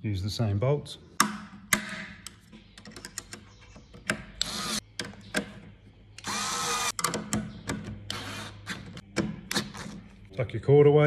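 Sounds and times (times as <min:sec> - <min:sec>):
cordless drill whirring: 0:06.2 - 0:06.9, 0:08.1 - 0:08.6.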